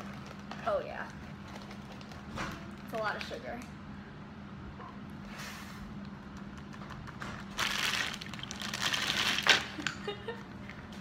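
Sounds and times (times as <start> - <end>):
plastic bag crinkling: 0.0 - 3.2, 7.4 - 10.0.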